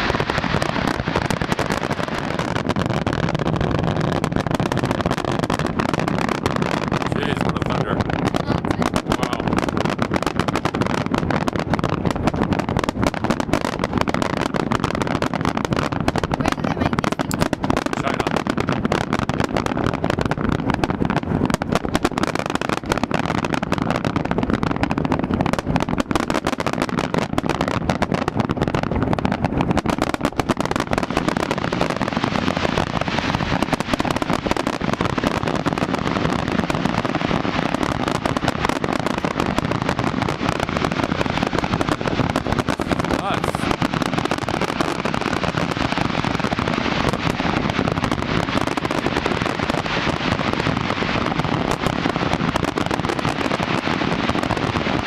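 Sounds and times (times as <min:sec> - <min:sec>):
fireworks bursting and crackling: 0:00.0 - 0:55.0.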